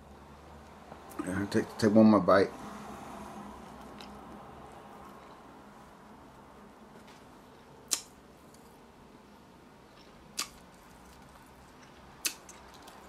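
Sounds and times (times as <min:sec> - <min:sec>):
lip smacks: 0:07.8 - 0:08.2, 0:10.0 - 0:13.0
person chewing: 0:10.0 - 0:13.0.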